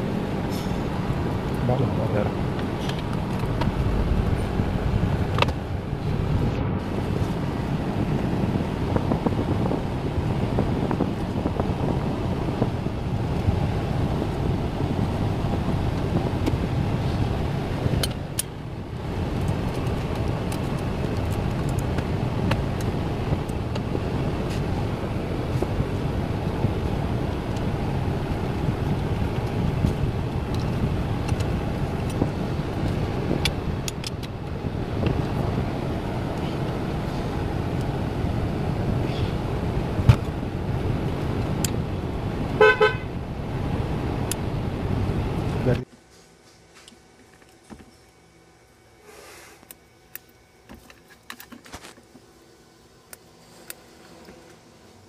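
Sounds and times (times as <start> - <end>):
road traffic noise: 0.0 - 55.0
pulsing car horn toot: 42.6 - 43.2.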